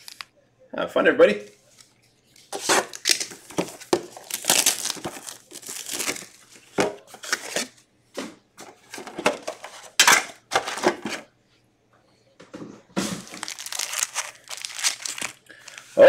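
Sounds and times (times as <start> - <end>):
foil wrappers crinkling: 0.0 - 0.3, 1.6 - 7.8, 13.0 - 16.0.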